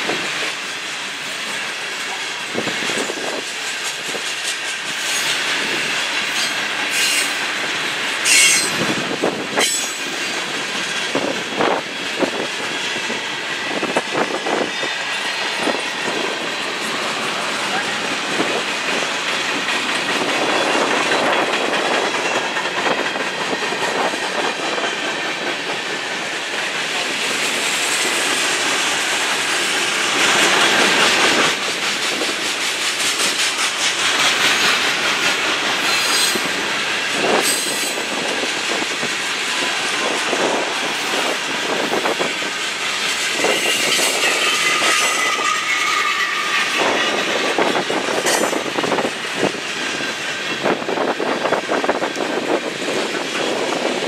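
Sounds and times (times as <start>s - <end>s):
clickety-clack over rail joints: 0.0s - 54.0s
train wheels rumbling on rails: 0.0s - 54.0s
wheel squeal: 6.4s - 7.4s, 8.2s - 8.8s, 43.4s - 48.6s.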